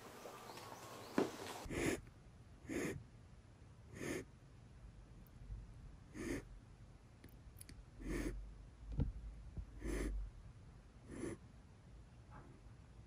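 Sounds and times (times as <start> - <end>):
kitten hissing: 2.7 - 3.0, 3.9 - 4.2, 6.2 - 6.4.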